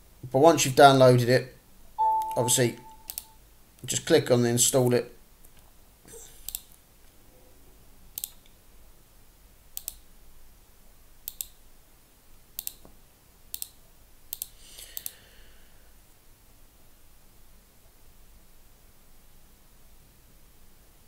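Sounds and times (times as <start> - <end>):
computer mouse clicks: 3.0 - 3.3, 6.4 - 6.8, 8.1 - 8.6, 9.8 - 10.1, 11.2 - 11.6, 12.6 - 15.2.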